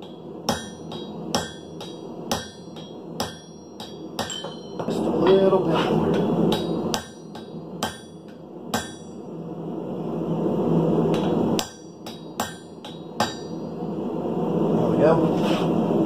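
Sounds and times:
hammer striking chisel on steel: 0:00.0 - 0:09.2, 0:11.1 - 0:13.6
steady rushing noise: 0:00.0 - 0:16.0.

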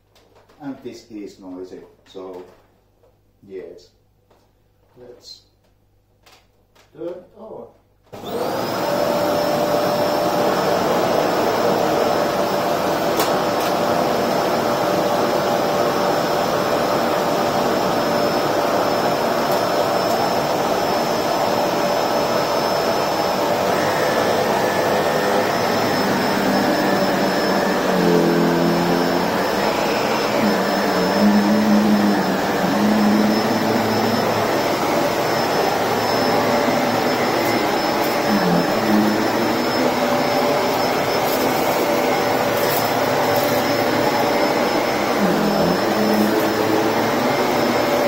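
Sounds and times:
vacuum cleaner running: 0:08.1 - 0:48.0.

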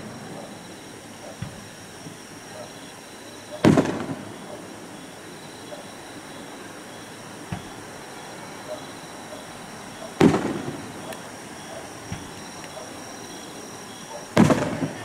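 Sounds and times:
firework boom: 0:03.6 - 0:04.3, 0:10.2 - 0:11.1, 0:14.4 - 0:15.0.

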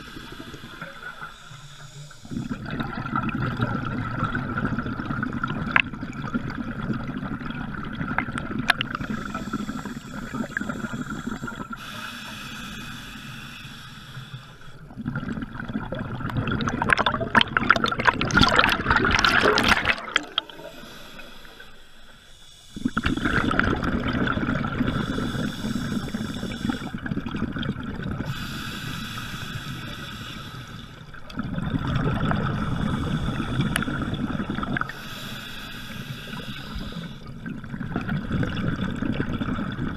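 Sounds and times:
diver breathing through regulator: 0:00.0 - 0:02.8, 0:09.0 - 0:14.9, 0:20.1 - 0:23.8, 0:24.7 - 0:27.1, 0:28.3 - 0:31.1, 0:32.5 - 0:37.4
exhaled air bubbling: 0:00.0 - 0:39.9.

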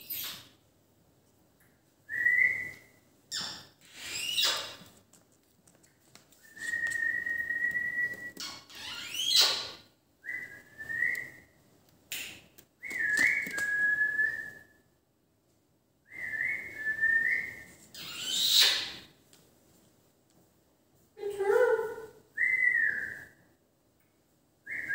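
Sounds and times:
whistled notes: 0:06.5 - 0:08.4.

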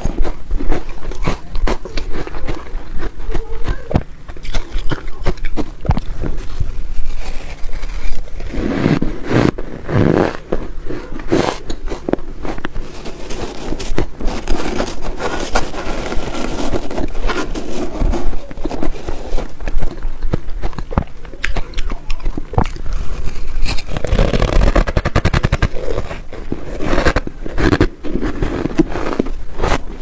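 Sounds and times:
chewing crunchy ice: 0:00.0 - 0:30.0
metal spoon scraping plastic bowl: 0:04.4 - 0:20.0.

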